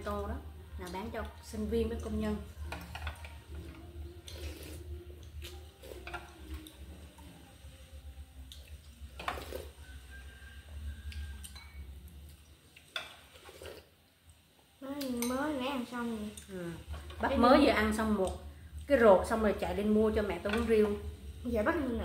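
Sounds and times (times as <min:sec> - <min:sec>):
low steady hum: 0:00.0 - 0:22.0
slurping broth: 0:04.2 - 0:06.0, 0:09.2 - 0:10.0, 0:12.8 - 0:13.9
utensils clinking on ceramic bowls: 0:11.4 - 0:11.9.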